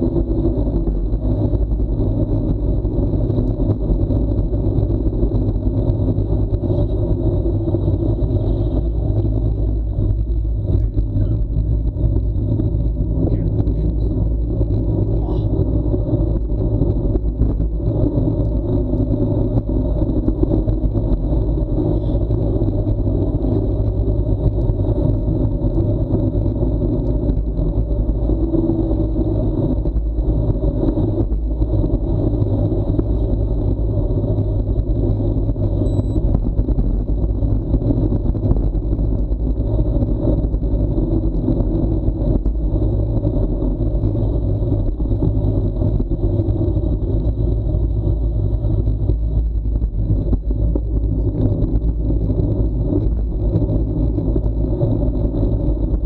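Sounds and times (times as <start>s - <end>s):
bicycle tyre and road noise: 0.0s - 56.0s
wind rumble on microphone: 0.0s - 56.0s.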